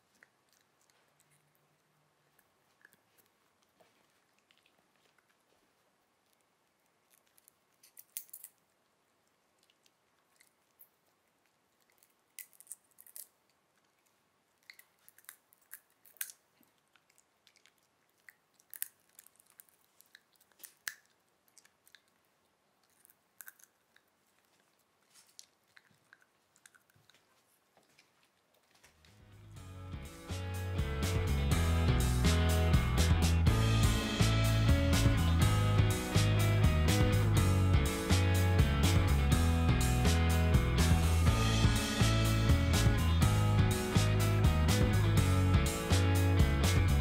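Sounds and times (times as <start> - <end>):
puppy crunching popcorn: 0.0 - 29.0.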